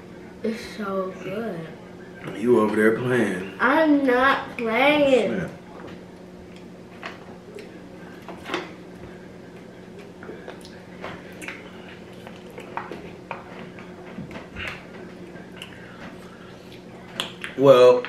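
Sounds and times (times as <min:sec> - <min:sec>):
chewing: 0:09.6 - 0:17.6.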